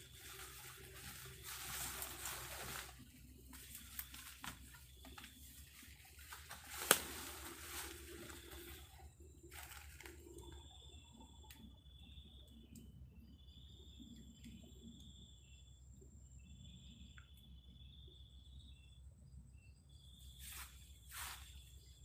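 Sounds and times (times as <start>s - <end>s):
dry leaves rustling and crackling: 0.0s - 10.6s
faint insect chirr: 0.0s - 22.0s.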